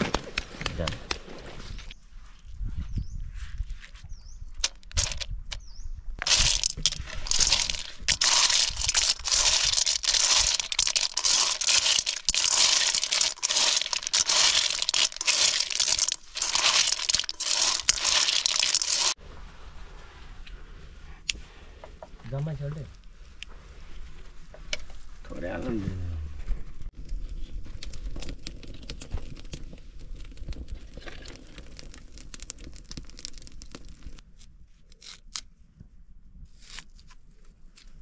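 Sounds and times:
snail shells rattling in metal bowl: 4.9s - 5.3s, 6.2s - 19.2s.

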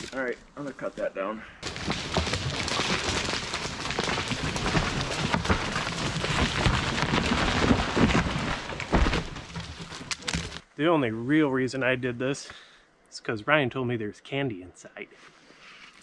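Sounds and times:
tree landing with heavy thump: 1.6s - 10.6s
branches crashing and rustling: 1.6s - 10.7s
wood cracking: 1.6s - 10.7s.

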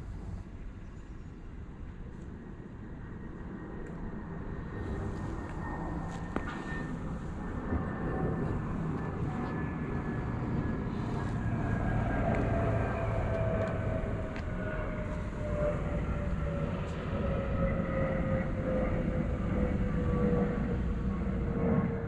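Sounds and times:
engine rumble with falling whine: 0.0s - 22.0s.

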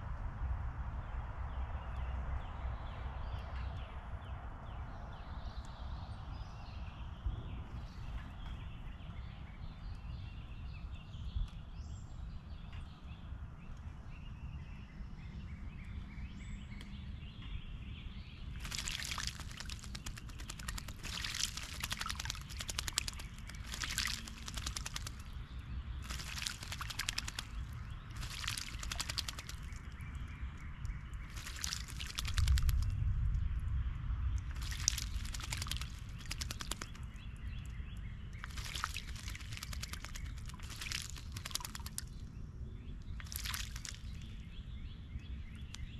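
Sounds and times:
bird splashing in water: 18.5s - 30.2s, 31.0s - 32.9s, 34.4s - 37.2s, 38.3s - 42.3s, 43.1s - 44.4s.

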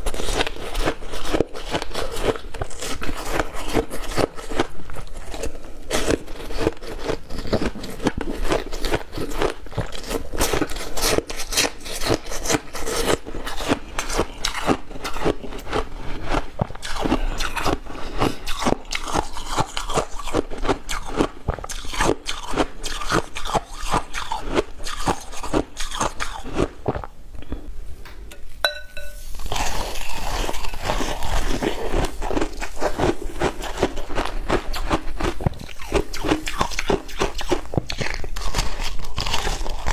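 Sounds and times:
crunching ice: 29.5s - 39.9s.

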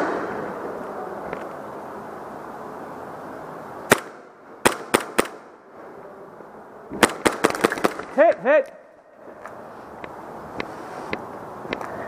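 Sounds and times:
airsoft gun shots: 3.9s - 5.5s, 7.0s - 8.1s.

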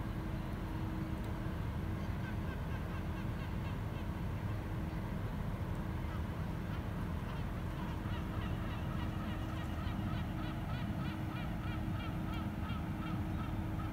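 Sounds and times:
bird calling: 6.7s - 13.9s.

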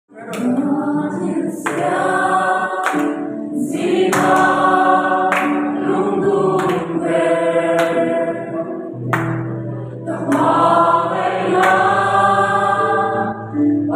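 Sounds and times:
group singing together: 0.1s - 13.9s
hand claps: 0.3s - 0.6s, 1.6s - 2.0s, 2.8s - 3.2s, 4.1s - 4.7s, 5.3s - 5.8s, 6.6s - 7.0s, 7.8s - 8.1s, 9.1s - 9.5s, 10.3s - 10.6s, 11.6s - 11.9s.

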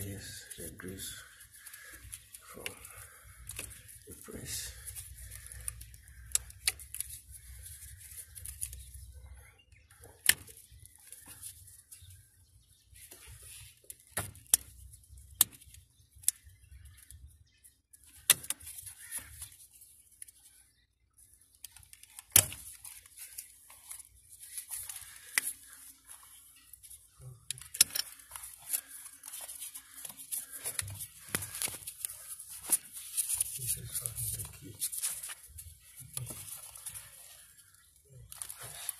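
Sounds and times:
soft rustling: 28.0s - 38.9s.

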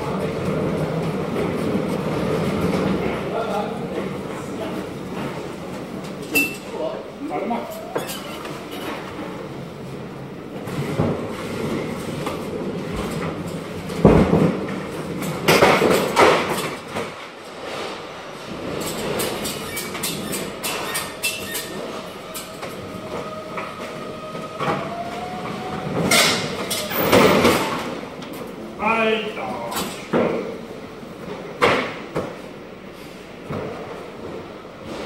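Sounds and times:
pallet jack wheels rattling: 7.6s - 9.3s, 18.5s - 28.5s.

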